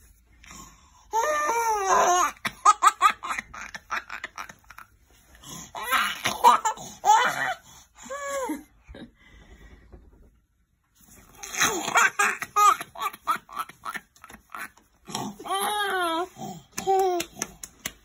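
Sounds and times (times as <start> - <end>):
toddler laughing and squealing: 5.8 - 7.6.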